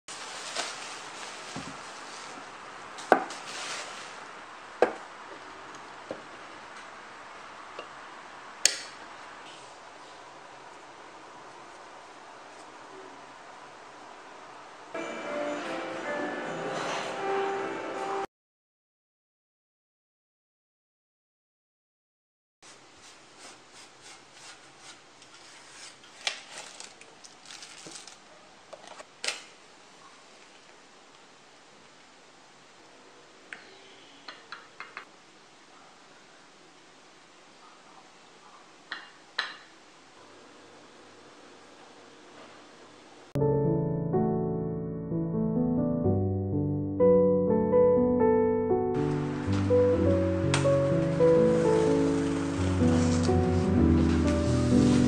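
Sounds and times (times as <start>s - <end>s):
faint hiss: 0.1s - 18.2s, 29.5s - 43.3s
feather duster swishing: 50.9s - 55.0s.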